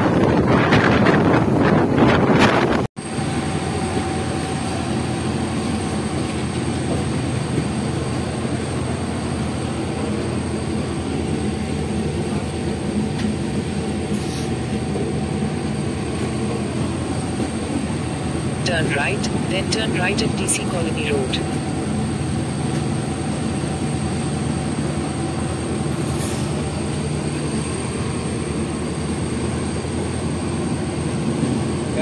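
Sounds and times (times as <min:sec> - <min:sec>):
wind buffeting microphone: 0:00.0 - 0:02.8
train wheels rumbling on rail: 0:00.0 - 0:19.5, 0:20.2 - 0:32.0.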